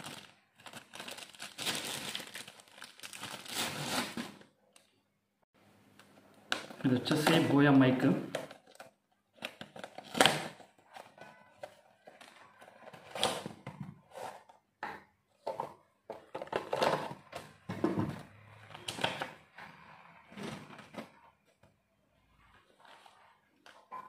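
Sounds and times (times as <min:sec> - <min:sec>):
packaging rustling and crinkling: 0:00.0 - 0:04.9.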